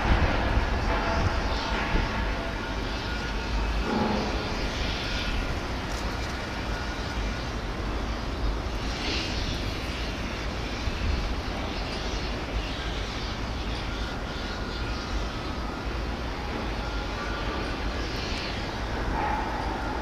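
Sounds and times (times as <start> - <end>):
wind buffeting microphone: 0.0 - 9.8.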